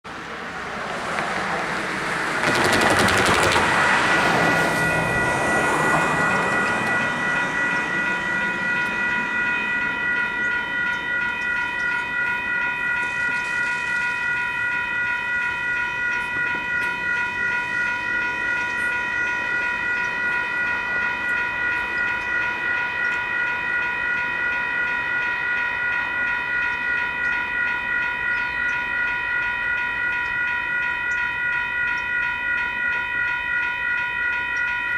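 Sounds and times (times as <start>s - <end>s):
loud rush of passing noise: 0.1s - 10.1s
electronic crossing bells ringing: 3.4s - 34.9s.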